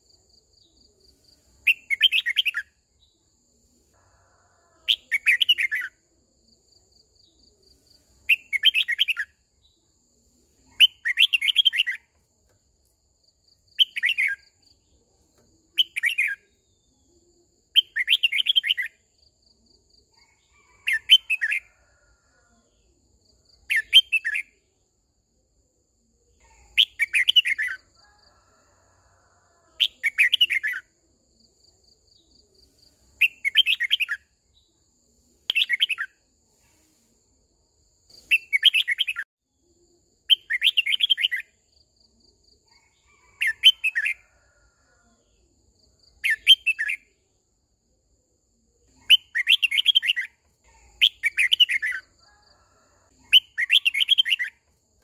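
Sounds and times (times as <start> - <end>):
bird singing bright phrases: 1.5 - 3.2, 4.9 - 6.0, 7.3 - 9.9, 10.6 - 12.2, 15.7 - 19.0, 26.3 - 27.9, 33.1 - 34.8, 46.1 - 47.2, 48.9 - 52.4, 53.2 - 54.7.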